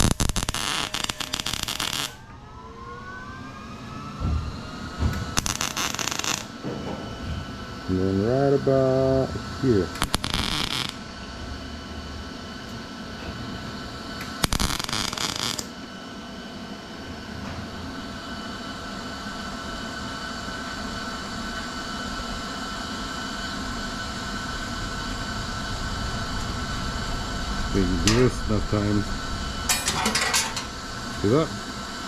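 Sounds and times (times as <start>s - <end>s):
welder arc crackling: 0.0s - 2.2s, 5.3s - 6.6s, 8.0s - 11.1s, 14.2s - 15.7s
mechanical hum with faint whine: 0.0s - 32.0s.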